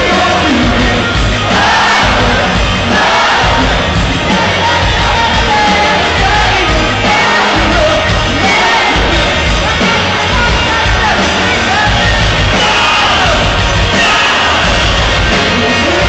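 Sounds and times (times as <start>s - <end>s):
crowd noise: 0.0s - 16.0s
live rock band playing: 0.0s - 16.0s
person singing: 0.0s - 16.0s.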